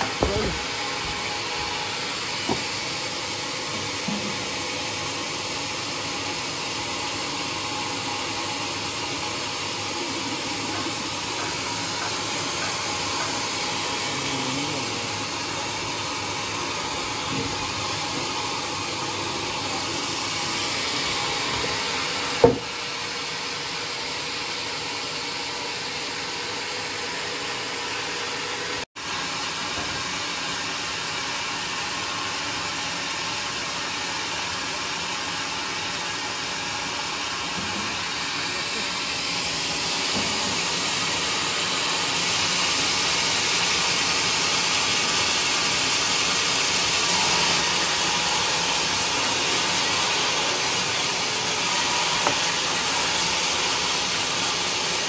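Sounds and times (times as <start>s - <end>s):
sharp knock of timber: 22.4s - 22.7s.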